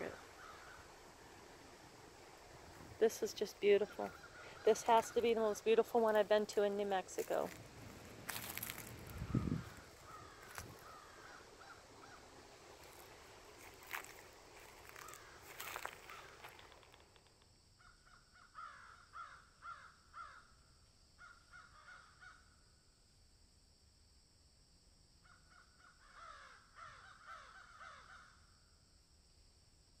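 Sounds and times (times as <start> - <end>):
crows cawing: 0.0 - 1.2, 4.0 - 5.1, 8.3 - 13.1, 13.8 - 16.9, 17.8 - 20.5, 21.2 - 22.4, 25.3 - 28.4
rustling: 7.1 - 17.4.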